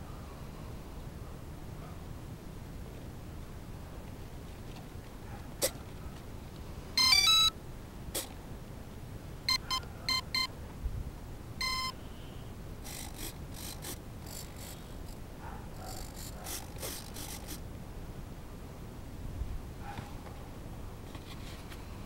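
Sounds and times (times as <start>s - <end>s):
short electronic beeps: 7.0s - 7.5s, 9.5s - 10.5s, 11.6s - 12.1s
stepped start-up tones: 7.0s - 7.5s, 11.6s - 11.9s
faint handling rustle: 19.9s - 22.0s.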